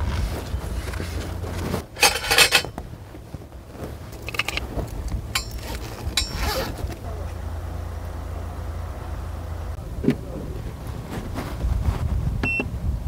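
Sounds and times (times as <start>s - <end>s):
clattering and scraping: 0.0s - 7.4s.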